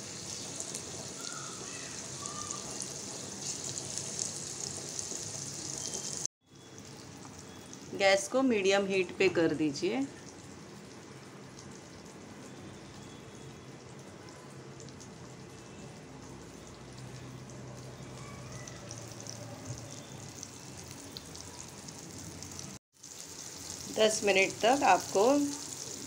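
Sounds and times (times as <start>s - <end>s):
fish sizzling in a pan: 0.0s - 7.8s, 16.3s - 26.0s.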